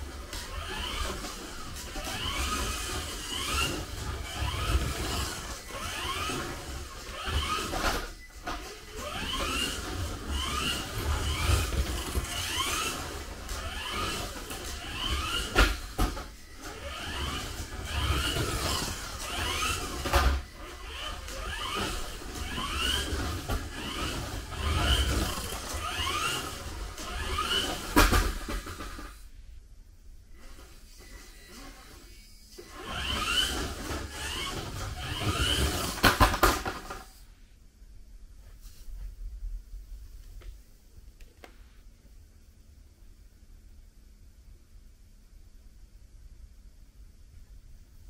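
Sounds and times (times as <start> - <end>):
small electric motor whining: 0.0 - 29.2, 30.4 - 36.4.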